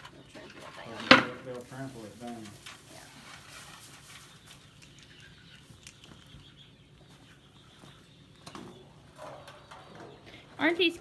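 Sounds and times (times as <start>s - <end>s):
dry straw rustling: 0.5s - 6.3s.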